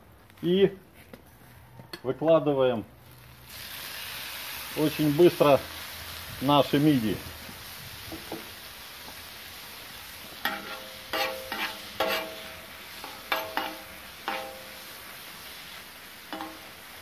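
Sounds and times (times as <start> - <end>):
mussels sizzling in hot oil: 3.0 - 17.0
metal spoon knocking against pan: 13.3 - 14.6, 16.3 - 16.6.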